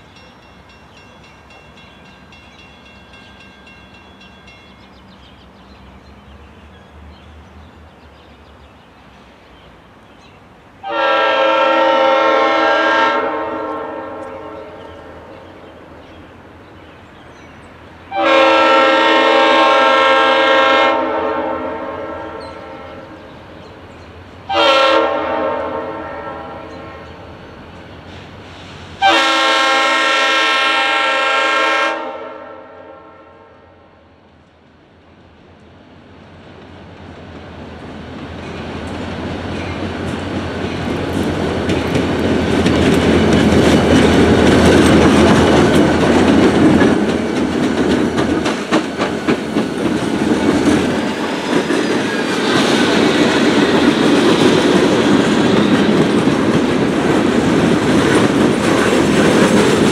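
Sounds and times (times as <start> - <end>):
faint low train rumble: 0.0 - 59.9
locomotive air horn blasts: 10.8 - 14.8, 18.1 - 23.0, 24.5 - 27.0, 29.0 - 34.0.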